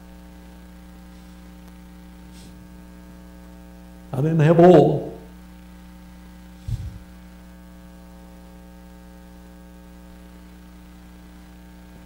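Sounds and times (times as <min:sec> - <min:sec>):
electrical mains hum: 0:00.0 - 0:12.0
short low thump: 0:06.6 - 0:07.1.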